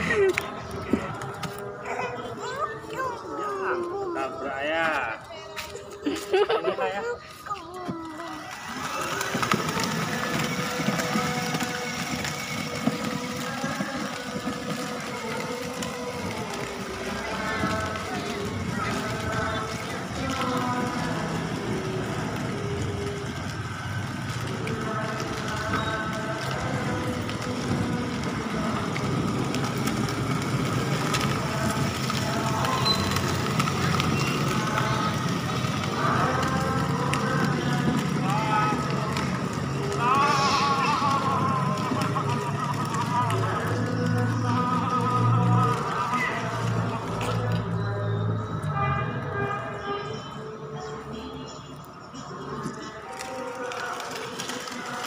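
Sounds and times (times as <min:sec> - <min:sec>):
plastic wheels rumbling on bricks: 0:00.0 - 0:48.6, 0:52.1 - 0:55.0
toy electric motors whirring: 0:07.7 - 0:21.2
electric toy car motors whining: 0:07.8 - 0:46.0.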